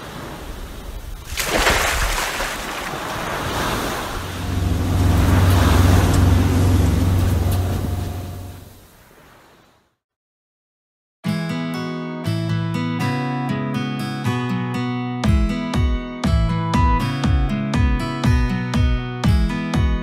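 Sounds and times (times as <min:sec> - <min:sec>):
ocean surf breaking: 0:00.0 - 0:09.8
deep steady drone: 0:04.3 - 0:08.6.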